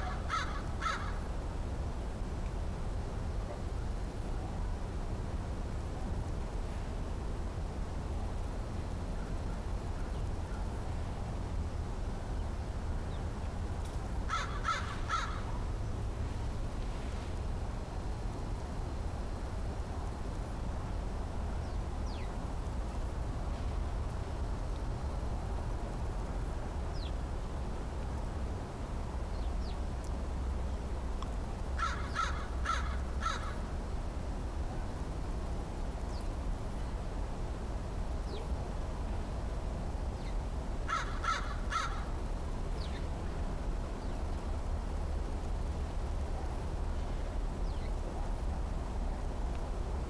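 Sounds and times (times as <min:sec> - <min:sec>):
crow cawing: 0:00.0 - 0:01.2, 0:14.3 - 0:15.5, 0:31.8 - 0:33.6, 0:40.9 - 0:42.1.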